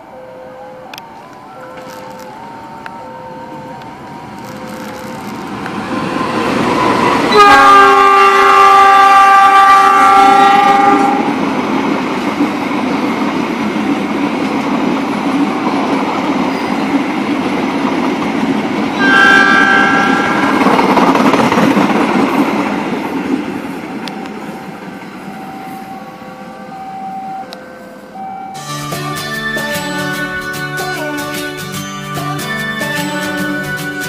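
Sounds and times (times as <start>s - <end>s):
train rolling past at speed: 0.0s - 34.0s
train wheels on rails: 0.0s - 34.0s
train horn blast: 7.3s - 11.4s, 19.0s - 21.2s.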